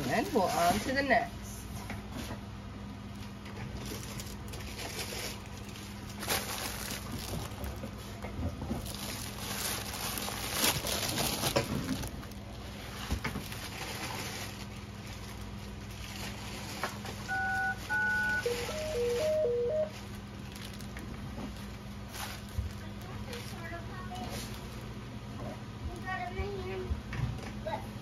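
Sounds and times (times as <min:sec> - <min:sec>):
plastic wrapping crinkling: 0:03.2 - 0:24.7
alternating high and low beeps: 0:17.3 - 0:19.9
electronic double-tone beeps: 0:17.3 - 0:19.9.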